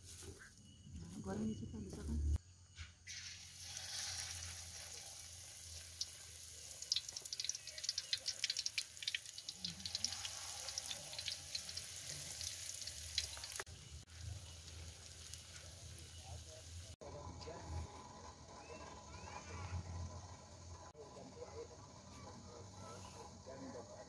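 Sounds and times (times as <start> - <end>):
food frying in hot oil: 3.1 - 17.0.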